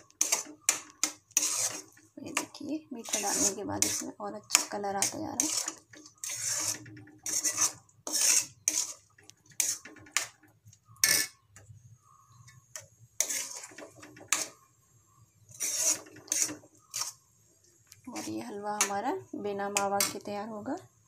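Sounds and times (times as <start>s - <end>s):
metal spoon scraping a metal pan: 0.0s - 10.4s, 11.0s - 11.4s, 12.3s - 14.7s, 15.4s - 17.2s, 18.1s - 19.0s, 19.7s - 20.3s.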